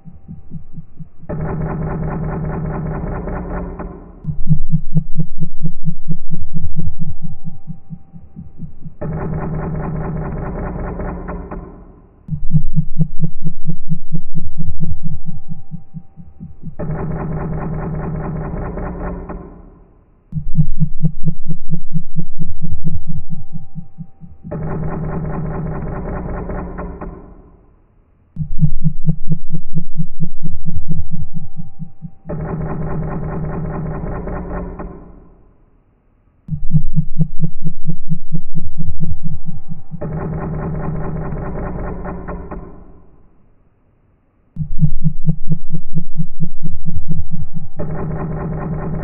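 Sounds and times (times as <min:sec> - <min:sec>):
dense low buzzing: 0:00.0 - 0:11.6, 0:12.3 - 0:19.4, 0:20.3 - 0:27.0, 0:28.4 - 0:34.9, 0:36.5 - 0:43.1, 0:44.6 - 0:49.0
low throbbing pulse: 0:00.0 - 0:27.7, 0:28.4 - 0:35.5, 0:36.5 - 0:43.3, 0:44.6 - 0:49.0
steady higher tone: 0:04.3 - 0:09.0, 0:12.3 - 0:16.8, 0:20.4 - 0:24.5, 0:36.5 - 0:40.1
quick low thuds: 0:04.3 - 0:09.1.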